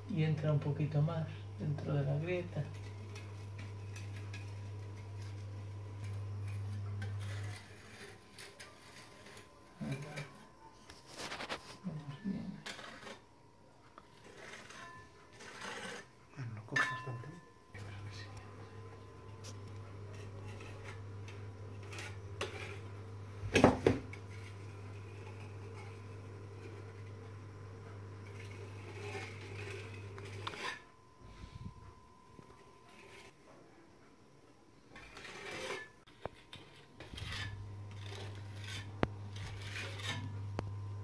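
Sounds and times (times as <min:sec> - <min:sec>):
spatula scraping a wall: 0:01.7 - 0:11.8, 0:12.5 - 0:13.2, 0:14.0 - 0:16.2, 0:19.3 - 0:27.2, 0:28.2 - 0:31.5, 0:32.6 - 0:33.4, 0:34.9 - 0:40.6
steady low hum: 0:16.0 - 0:35.0.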